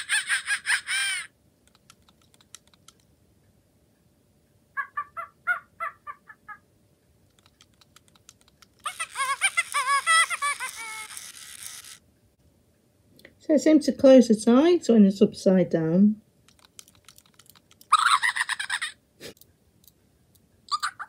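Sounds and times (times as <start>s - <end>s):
faint clicking: 1.6s - 4.6s, 7.0s - 8.8s, 16.4s - 17.9s, 19.3s - 20.6s
electronic toy chirps and chatter: 8.8s - 12.0s, 20.7s - 21.0s.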